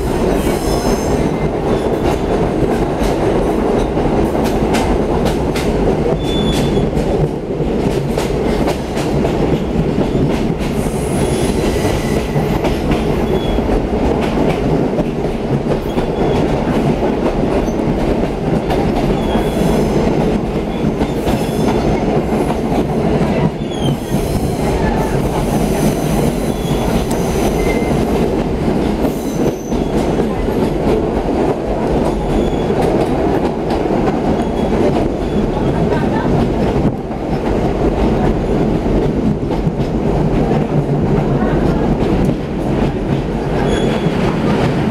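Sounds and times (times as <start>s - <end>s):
rail joint clicks: 0.0s - 44.9s
train wheels rumbling on rail: 0.0s - 44.9s.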